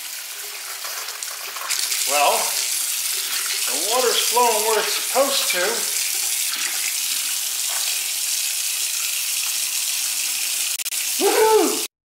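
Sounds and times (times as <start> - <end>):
faucet water running into sink: 0.0 - 11.7
short voice: 11.2 - 11.9.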